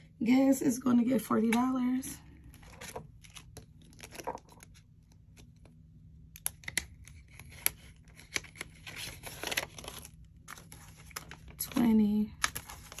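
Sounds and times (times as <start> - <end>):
banknotes rustling: 2.4 - 5.7, 7.0 - 13.0
plastic envelope crinkling: 2.4 - 13.0.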